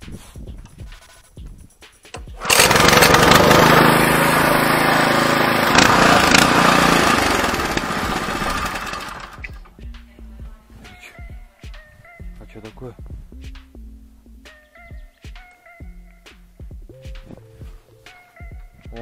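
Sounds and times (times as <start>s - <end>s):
tractor petrol engine starting: 2.2s - 9.7s.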